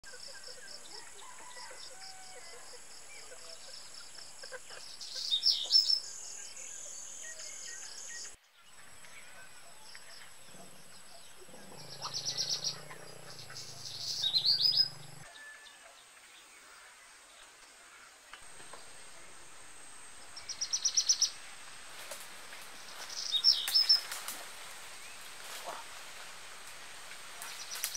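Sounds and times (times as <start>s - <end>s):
birds chirping: 2.8s - 15.3s, 18.4s - 27.9s.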